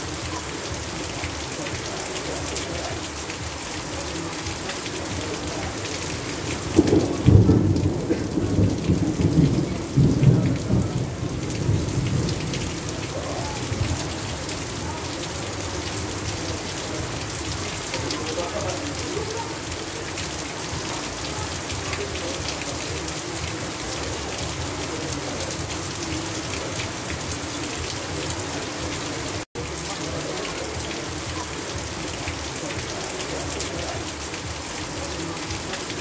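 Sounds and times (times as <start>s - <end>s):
heavy rain falling: 0.0s - 36.0s
thunder rumbling: 5.2s - 17.9s.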